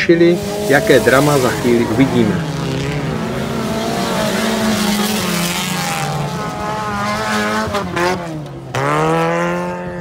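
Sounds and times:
race car engines droning: 0:00.0 - 0:10.0.

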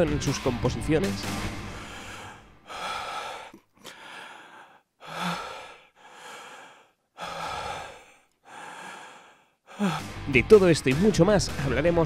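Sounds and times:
person breathing in and out: 0:01.6 - 0:10.2.

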